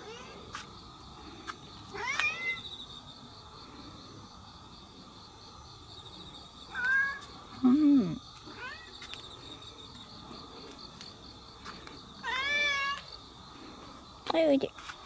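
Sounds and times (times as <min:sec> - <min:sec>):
cat meowing: 0:06.7 - 0:07.2, 0:12.2 - 0:13.0.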